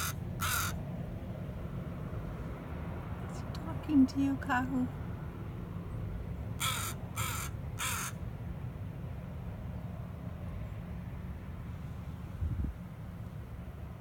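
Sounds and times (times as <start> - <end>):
crow cawing: 0.0 - 0.8, 6.6 - 8.2.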